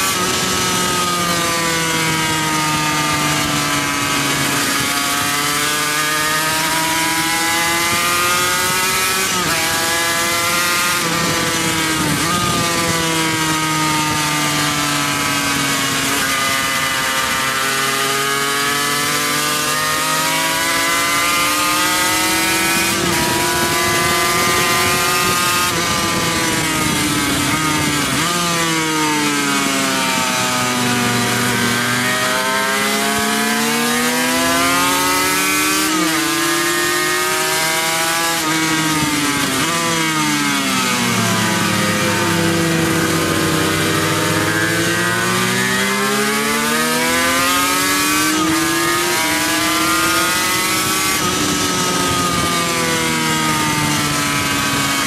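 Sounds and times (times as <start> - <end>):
racing motorcycle engine revving: 0.0 - 55.0
wind rush on microphone: 7.5 - 14.8, 22.0 - 29.2, 48.4 - 55.0.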